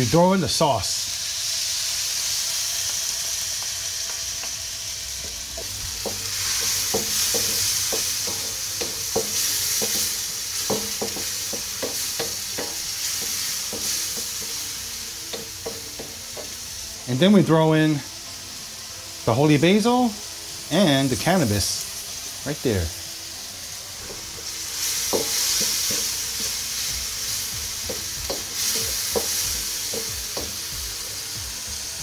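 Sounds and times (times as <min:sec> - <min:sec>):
chicken sizzling in a wok: 0:00.0 - 0:32.0
wooden spatula scraping wok: 0:05.1 - 0:16.5, 0:24.0 - 0:30.5.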